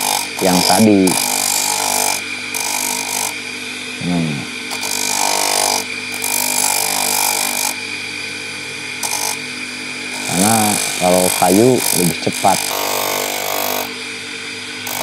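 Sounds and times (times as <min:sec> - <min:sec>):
gritty rasp of sanding wood: 0:00.0 - 0:01.9, 0:10.2 - 0:13.8
sanding disc motor hum: 0:00.0 - 0:15.0.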